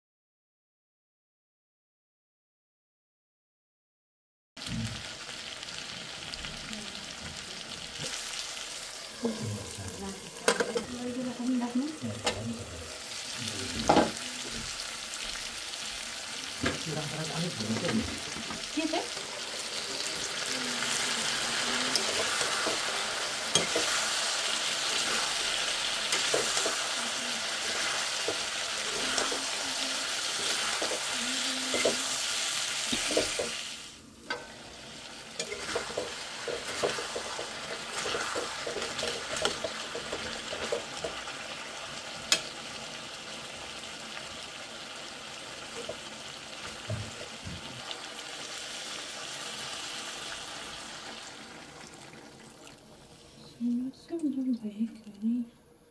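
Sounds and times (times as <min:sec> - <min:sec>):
chicken sizzling in a pan: 0:04.6 - 0:53.4
metal ladle scraping a pan: 0:19.2 - 0:32.3, 0:35.4 - 0:41.2.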